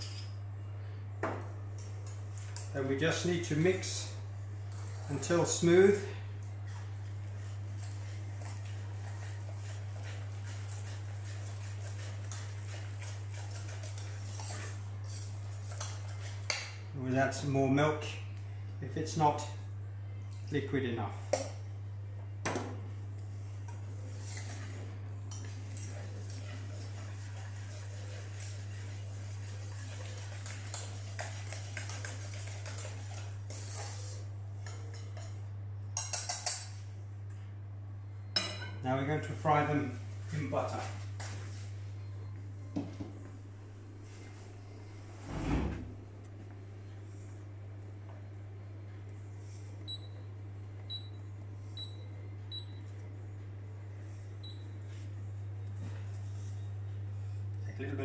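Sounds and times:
steady low hum: 0:00.0 - 0:58.0
whisk scraping in saucepan: 0:06.8 - 0:16.7, 0:24.0 - 0:35.3
whisk tapping pan: 0:07.4 - 0:16.8, 0:25.4 - 0:35.3.

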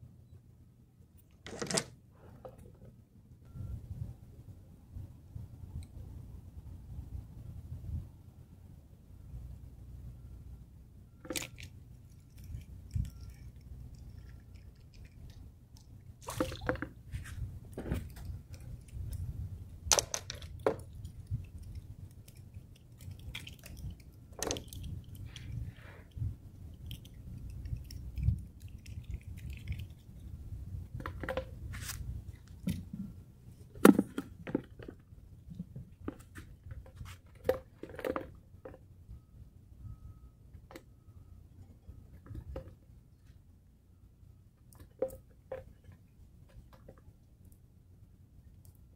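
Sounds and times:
steady low rumble: 0:03.3 - 0:16.2, 0:16.9 - 0:34.4
clicks and taps handling fish: 0:11.2 - 0:29.8, 0:31.0 - 0:33.1, 0:40.5 - 0:40.9, 0:44.6 - 0:47.0.

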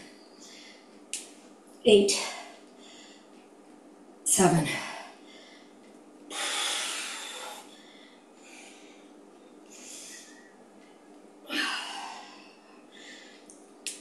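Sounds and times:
woman breathing hard: 0:05.0 - 0:10.6, 0:11.5 - 0:13.5.

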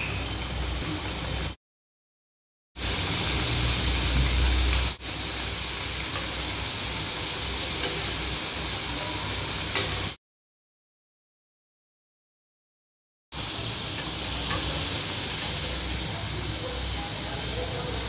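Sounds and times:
hot oil sizzling: 0:00.0 - 0:01.6, 0:02.8 - 0:10.2, 0:13.3 - 0:18.0.

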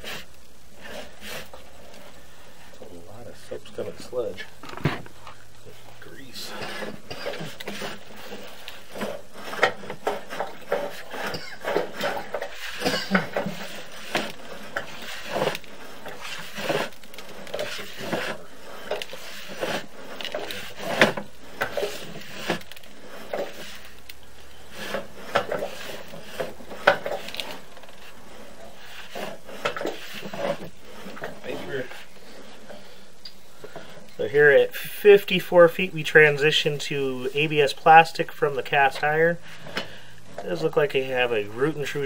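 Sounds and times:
cable clattering in pipe: 0:06.2 - 0:34.3.

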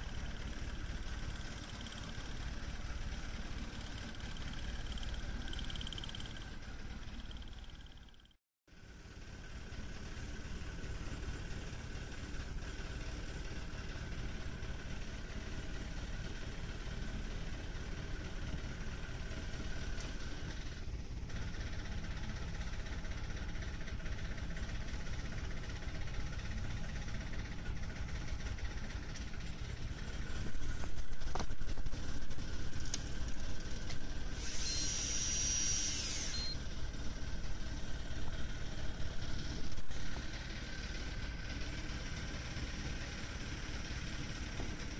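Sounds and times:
boat engine idling: 0:00.0 - 0:08.4, 0:09.1 - 0:44.9
electric reel whine: 0:31.8 - 0:37.0
fishing reel motor whining: 0:34.3 - 0:36.6.

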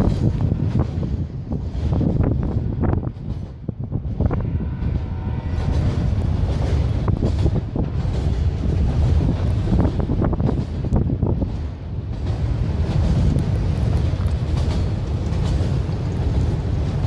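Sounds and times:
freight train wheels rumbling: 0:00.0 - 0:17.0
train wheels clacking: 0:00.0 - 0:17.0
wind buffeting microphone: 0:00.0 - 0:17.0.

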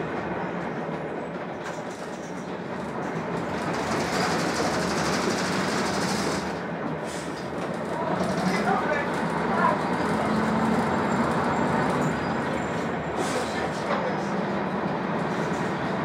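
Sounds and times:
bus diesel engine running: 0:00.0 - 0:16.0
road noise: 0:00.0 - 0:16.0.

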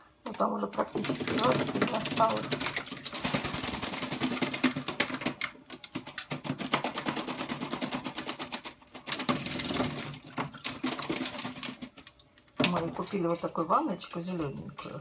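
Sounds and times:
bird splashing in water: 0:00.8 - 0:05.2, 0:06.0 - 0:12.1.

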